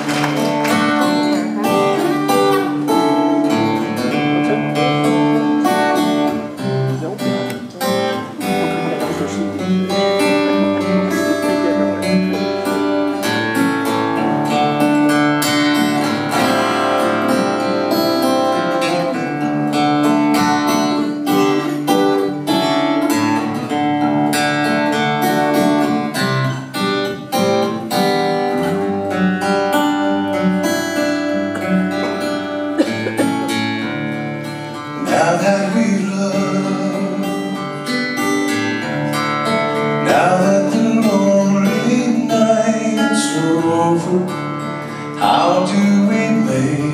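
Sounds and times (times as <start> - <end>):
acoustic guitar playing: 0.0 - 46.9
man singing: 34.8 - 38.2, 39.9 - 46.9.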